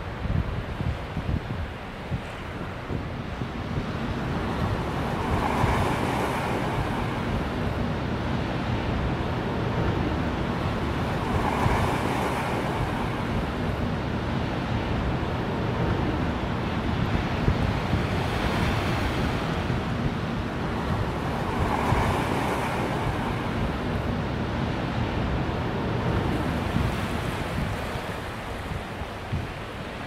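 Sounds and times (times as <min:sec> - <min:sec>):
wind rumbling on microphone: 0:00.0 - 0:30.0
waves washing over rocks: 0:02.8 - 0:08.2, 0:08.9 - 0:14.3, 0:17.3 - 0:24.5, 0:25.4 - 0:30.0.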